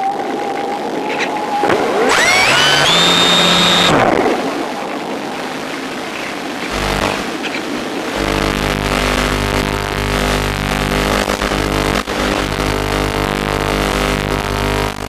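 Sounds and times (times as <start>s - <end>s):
high electronic tone gliding upward: 2.0s - 4.2s
electric motor humming: 2.1s - 4.1s, 6.7s - 7.2s, 8.2s - 15.0s.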